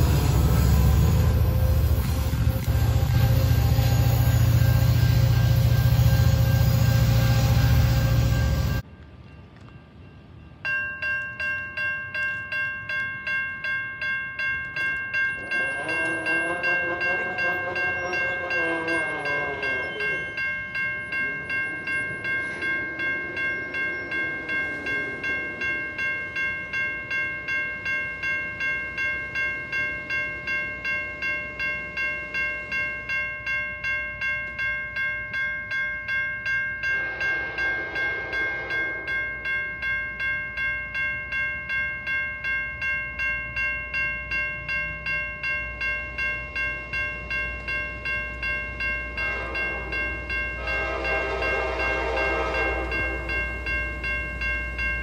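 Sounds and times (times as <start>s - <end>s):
distant train horn blasts: 0.0s - 8.8s, 15.4s - 20.4s, 36.9s - 39.4s, 49.1s - 53.7s
crossing warning bell ringing: 0.0s - 55.0s.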